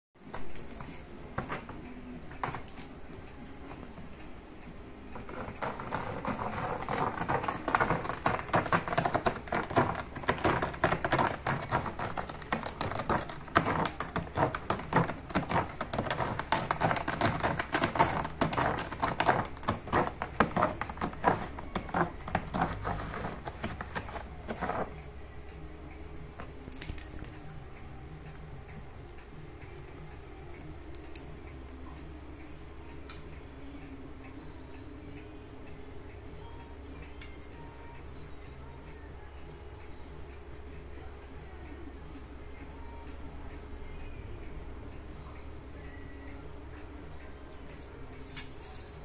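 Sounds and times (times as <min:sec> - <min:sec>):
cat scratching cardboard: 0:05.2 - 0:25.0.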